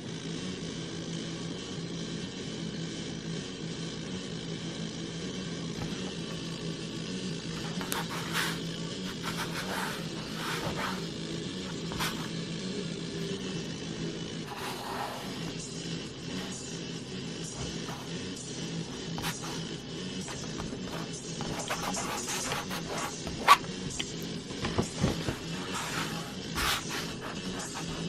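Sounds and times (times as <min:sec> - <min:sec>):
steady low hum: 0:00.0 - 0:28.0
hand smearing paint on canvas: 0:07.6 - 0:11.1, 0:11.9 - 0:12.3, 0:19.0 - 0:19.6, 0:20.3 - 0:28.0.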